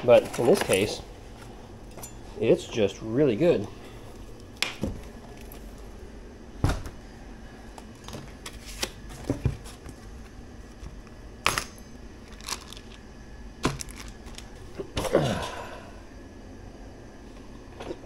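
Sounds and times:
packaging clicks and snaps: 11.5s - 13.0s, 13.6s - 14.5s.

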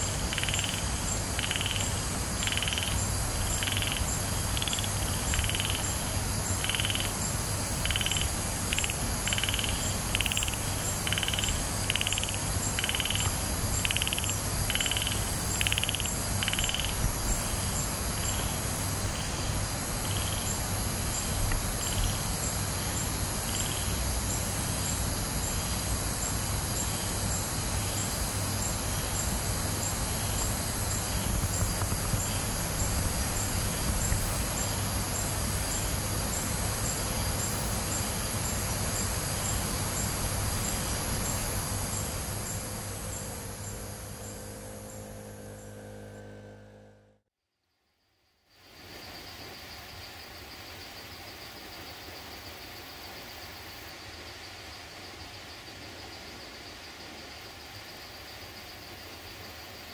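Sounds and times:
low steady hum: 0.0s - 47.3s.

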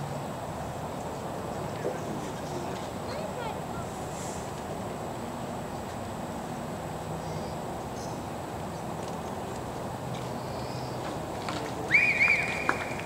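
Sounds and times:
open-air background hiss: 0.0s - 13.0s.

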